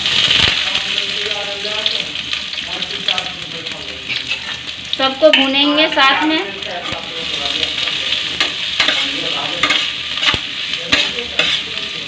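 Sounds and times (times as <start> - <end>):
food sizzling in hot oil: 0.0 - 12.0
spoon scraping and knocking pan: 4.0 - 6.1, 6.8 - 12.0.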